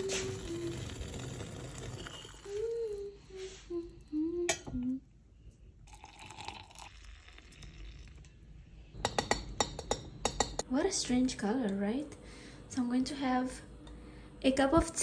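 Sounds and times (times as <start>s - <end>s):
person humming: 2.4s - 5.1s
water pouring into a glass: 5.8s - 8.3s.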